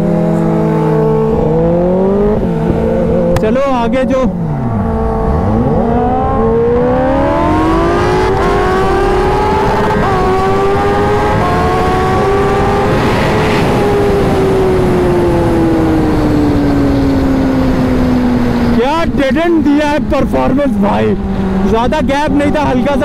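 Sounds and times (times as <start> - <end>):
heavy wind rush: 0.0 - 23.0
motorcycle engine at full throttle: 0.0 - 23.0.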